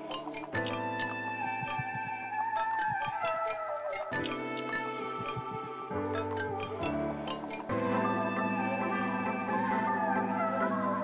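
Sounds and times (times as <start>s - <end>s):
background music with sliding melody: 0.0s - 11.0s.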